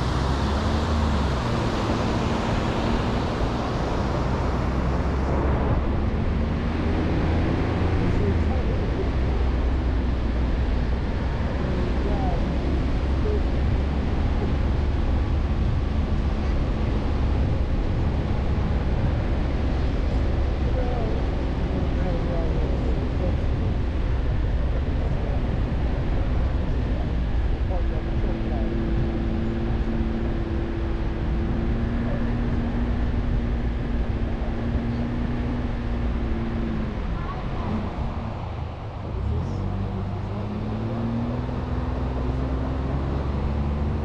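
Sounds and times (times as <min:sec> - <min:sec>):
truck engine and tyres rumbling: 0:00.0 - 0:44.0.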